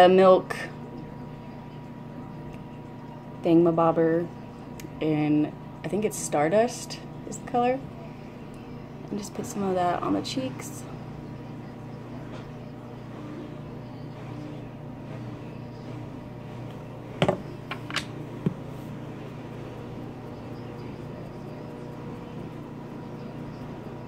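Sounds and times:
objects clicking on table: 0:17.2 - 0:18.6.

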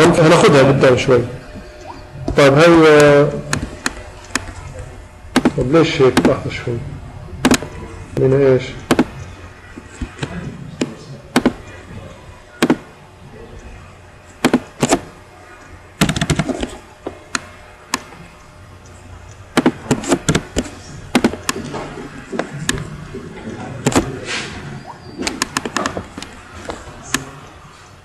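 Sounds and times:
keyboard typing: 0:16.0 - 0:16.8, 0:25.2 - 0:26.3.

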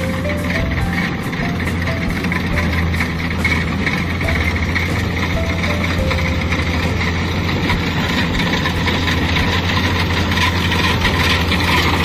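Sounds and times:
combine harvester diesel engine: 0:00.0 - 0:12.0
mechanical clatter of threshing machinery: 0:00.0 - 0:12.0.

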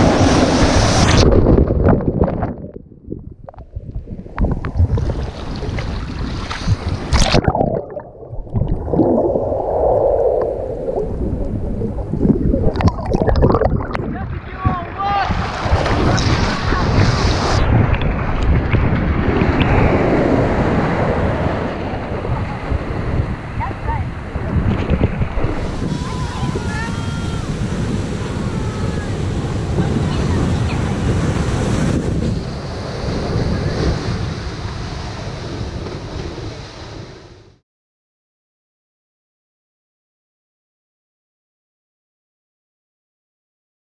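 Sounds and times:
surf splashing: 0:00.0 - 0:01.6, 0:04.0 - 0:37.2
wind buffeting the microphone: 0:00.0 - 0:07.7, 0:08.3 - 0:36.9
underwater gurgling swirl: 0:00.0 - 0:14.4.

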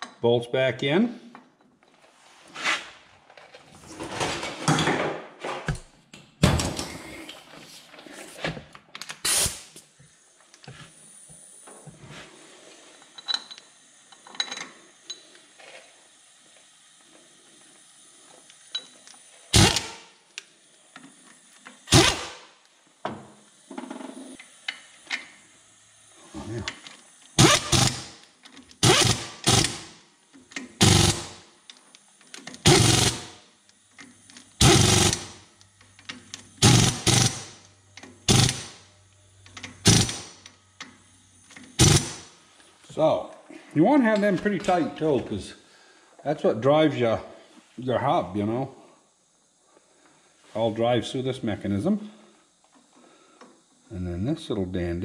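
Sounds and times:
power ratchet bursts: 0:17.4 - 0:22.7, 0:24.4 - 0:42.5.

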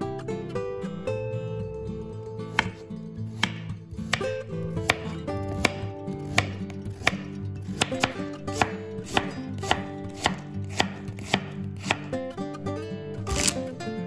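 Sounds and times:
background music: 0:00.0 - 0:14.0
knife chopping on wooden board: 0:02.5 - 0:12.1, 0:13.3 - 0:13.6.

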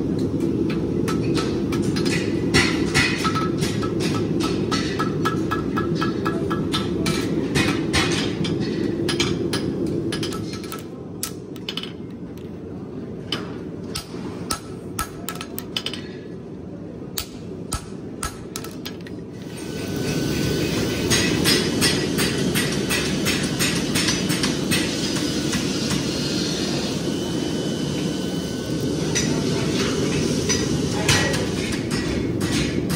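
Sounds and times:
hammer striking metal on anvil: 0:00.7 - 0:12.0, 0:13.4 - 0:16.1, 0:17.2 - 0:18.8, 0:21.1 - 0:26.1, 0:29.1 - 0:32.9.

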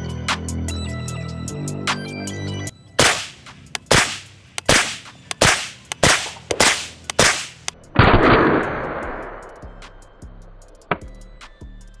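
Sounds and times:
suppressed gunshots: 0:03.0 - 0:09.3.

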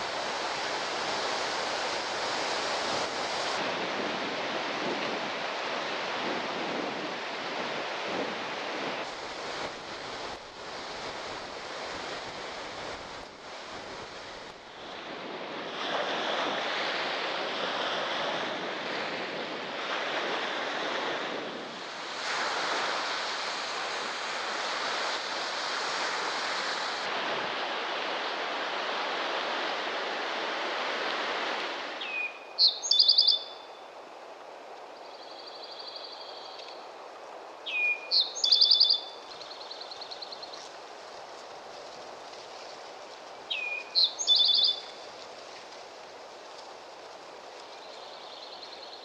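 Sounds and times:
waves washing on shore: 0:00.0 - 0:33.0, 0:36.7 - 0:49.0
wind gusting on microphone: 0:00.0 - 0:33.3
songbird singing trill: 0:32.0 - 0:33.8, 0:35.0 - 0:36.8, 0:37.6 - 0:40.6, 0:43.5 - 0:45.0.

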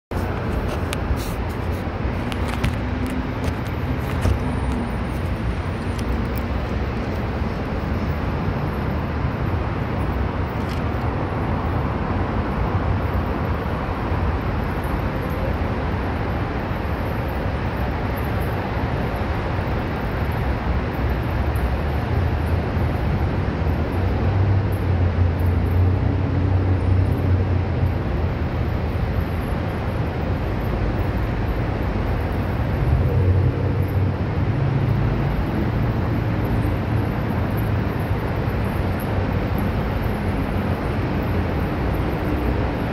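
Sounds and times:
road traffic rumble: 0:00.1 - 0:42.9.

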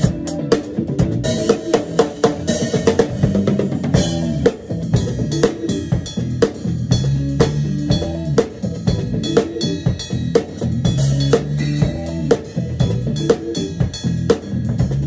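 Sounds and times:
backing music: 0:00.0 - 0:15.0
drum kit funk groove: 0:00.0 - 0:15.0.

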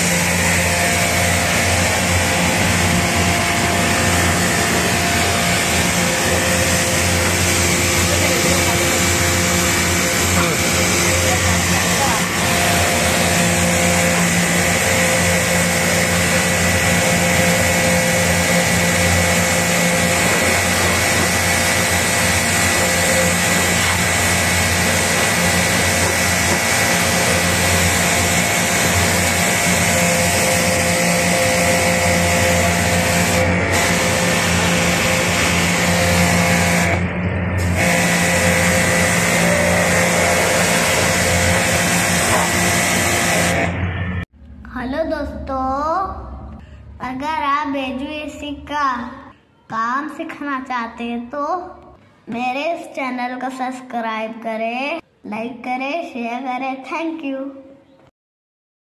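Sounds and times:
water spray hissing: 0:00.0 - 0:37.0, 0:37.6 - 0:43.7
pressure washer motor hum: 0:00.0 - 0:44.2.

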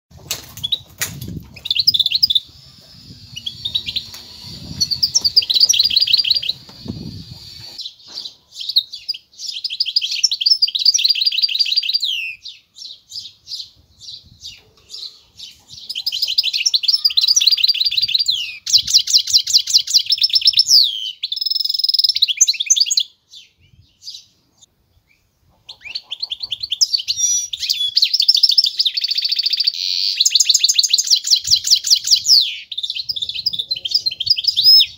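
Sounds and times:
bird singing trills: 0:01.6 - 0:24.3.

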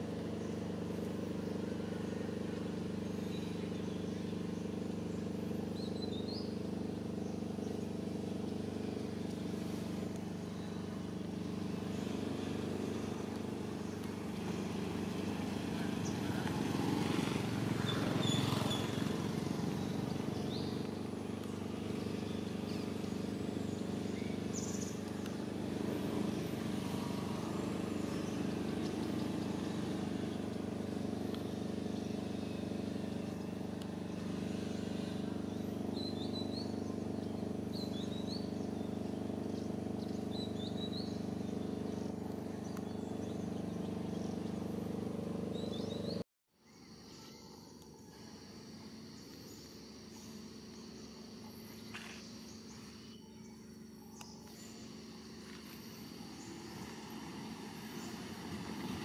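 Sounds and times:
low engine hum: 0:00.0 - 0:46.3, 0:48.2 - 0:59.0
bird chirps: 0:17.2 - 0:44.8.

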